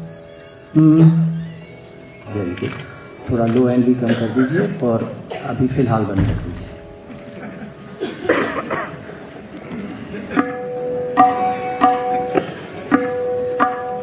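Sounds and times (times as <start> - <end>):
tabla strokes ringing: 10.4 - 14.0.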